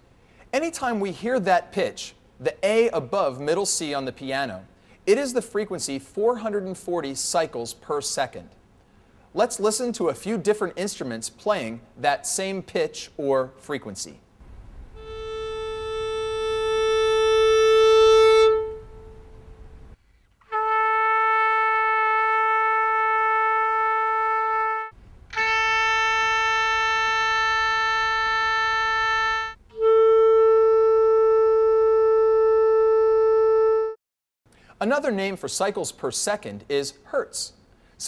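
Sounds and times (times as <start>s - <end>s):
bowed violin note: 14.4s - 34.0s
held instrument note: 14.5s - 34.0s
trumpet note: 14.5s - 34.0s
clarinet note: 14.9s - 34.0s.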